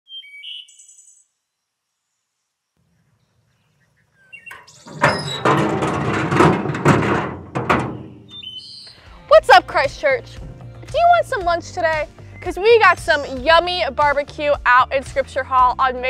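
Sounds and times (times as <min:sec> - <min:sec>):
bird chirps: 0:00.1 - 0:01.4, 0:02.0 - 0:05.3, 0:07.9 - 0:09.0
metal lid creaking open: 0:04.5 - 0:08.6.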